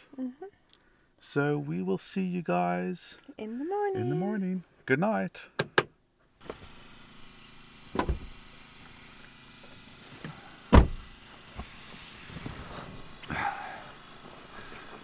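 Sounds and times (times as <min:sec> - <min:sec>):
rustling on air mattress: 0:11.6 - 0:13.2.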